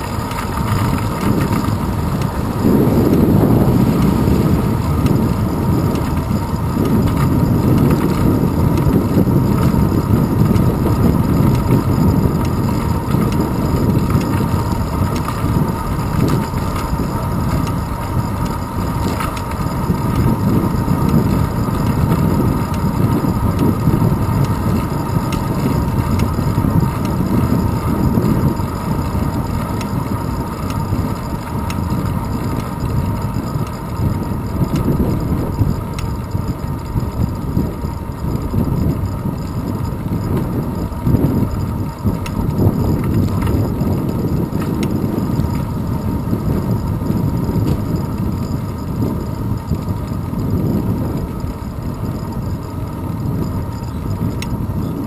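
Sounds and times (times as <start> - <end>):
wind rumble and road vibration: 0.0 - 55.0.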